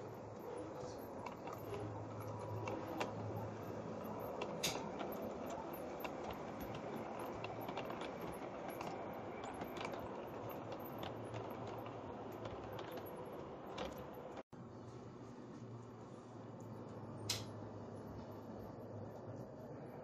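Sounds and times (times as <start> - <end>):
model train rolling: 0.0 - 14.4
wheels clicking on track: 0.0 - 14.4.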